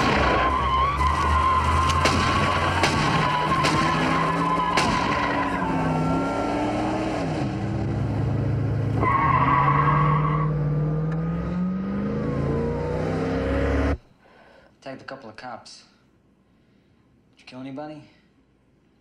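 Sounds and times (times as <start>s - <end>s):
car engine revving: 0.0s - 14.0s.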